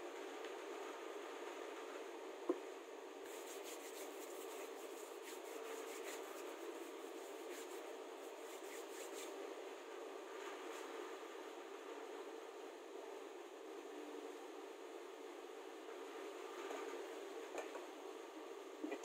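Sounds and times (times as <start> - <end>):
hands rubbing together: 3.3 - 9.4.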